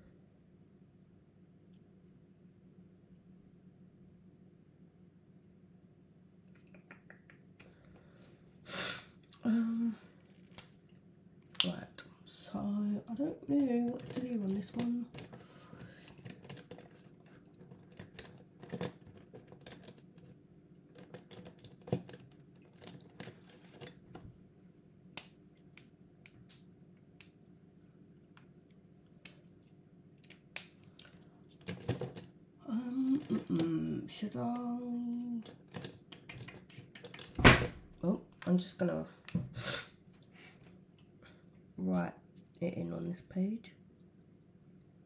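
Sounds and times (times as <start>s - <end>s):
low room hum: 0.0s - 45.0s
person making wordless sounds: 32.6s - 35.4s.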